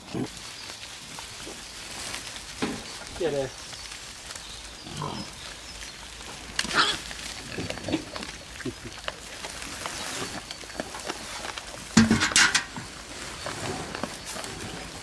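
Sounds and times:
wild boars grunting: 4.7s - 15.0s.

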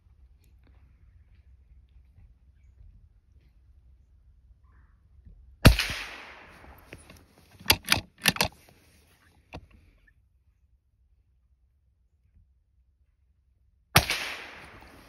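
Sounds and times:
rifle shot: 5.6s - 8.5s, 14.0s - 15.0s
sharp clicks: 5.7s - 8.6s.

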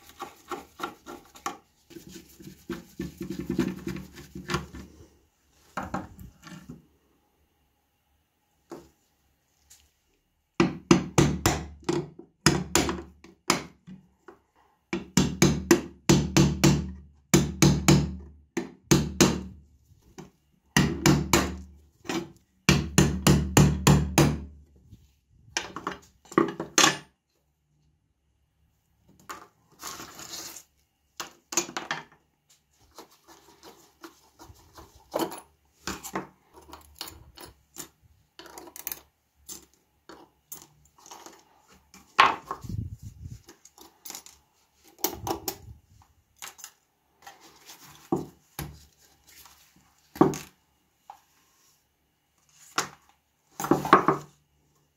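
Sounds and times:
metal parts clicking and scraping: 34.7s - 41.7s, 43.4s - 45.7s.

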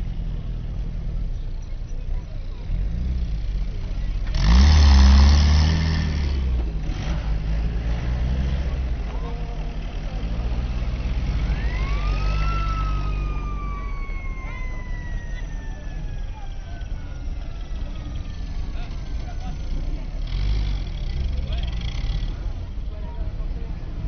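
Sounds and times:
jeep engine driving past: 0.0s - 24.0s
high whistle-like tone: 11.4s - 16.6s.

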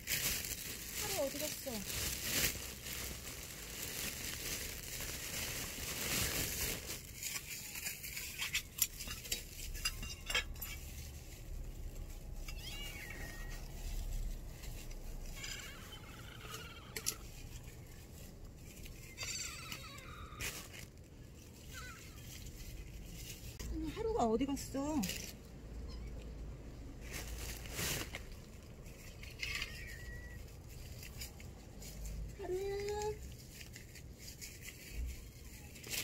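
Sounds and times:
cats calling: 12.3s - 14.3s, 15.2s - 17.2s, 19.0s - 20.6s, 29.2s - 30.6s.

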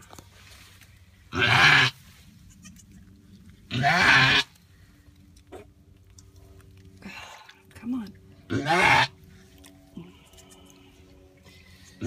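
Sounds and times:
goat bleating loudly: 1.3s - 2.9s, 3.7s - 4.5s, 8.5s - 9.2s.

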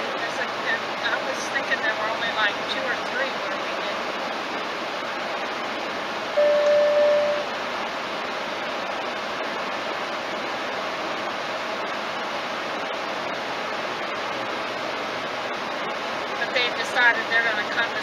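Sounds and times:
road and wind noise in car: 0.0s - 18.0s
electronic beep: 6.4s - 7.5s.

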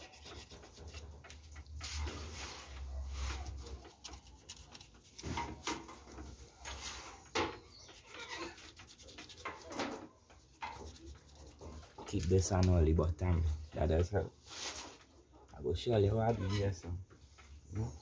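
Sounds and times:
knife scraping and cutting skin: 0.0s - 1.7s, 3.4s - 5.7s, 7.8s - 11.8s.

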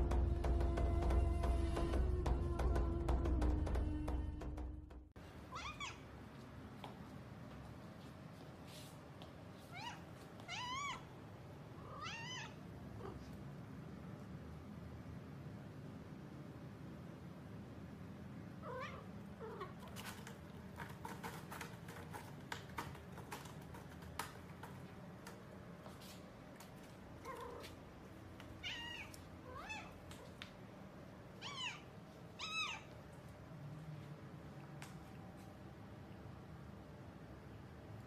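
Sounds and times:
cat meowing: 5.5s - 6.1s, 9.7s - 11.1s, 11.8s - 13.3s, 18.6s - 19.9s, 28.6s - 30.4s, 31.4s - 33.0s.

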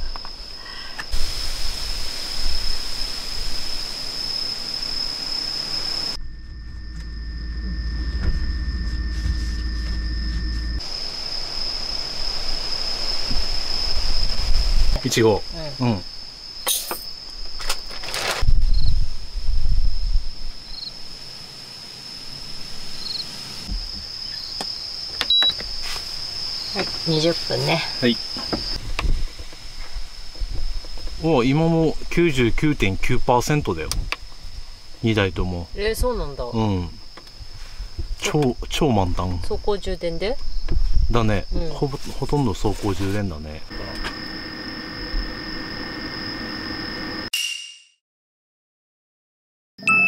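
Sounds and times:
rushing hiss: 0.0s - 6.1s, 21.3s - 23.7s
crickets chirping: 0.0s - 47.3s
insects trilling: 0.0s - 47.3s
short electronic beep: 49.8s - 50.0s.

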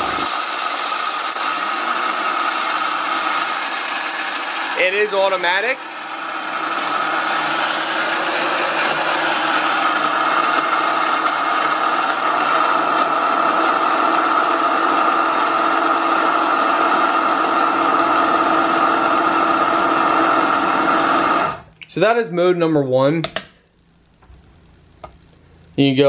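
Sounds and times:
coffee beans being ground: 0.0s - 15.0s
blade grinder motor whine: 0.0s - 21.6s.

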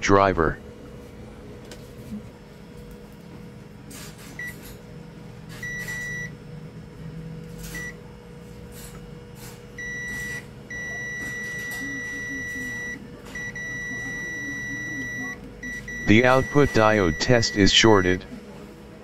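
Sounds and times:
multimeter continuity beeps: 5.6s - 6.4s, 7.7s - 8.0s, 9.8s - 18.2s.

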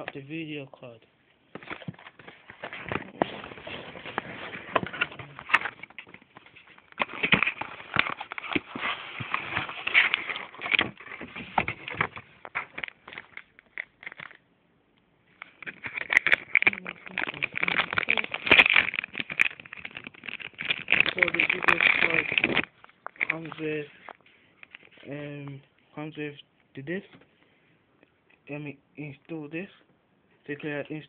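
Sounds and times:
hands rustling packaging: 1.5s - 14.4s, 15.3s - 25.1s.

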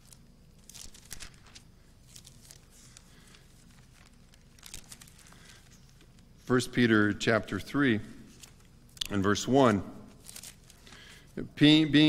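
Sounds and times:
paper pages rustling: 0.0s - 6.3s, 8.3s - 8.7s, 9.6s - 11.3s
low room hum: 0.0s - 12.0s.

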